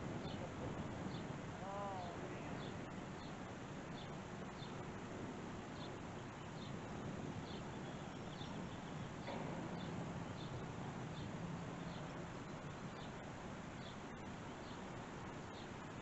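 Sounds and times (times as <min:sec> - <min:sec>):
low hum: 0:00.0 - 0:16.0
outdoor background hiss: 0:00.0 - 0:16.0
small bird chirping: 0:07.4 - 0:15.8.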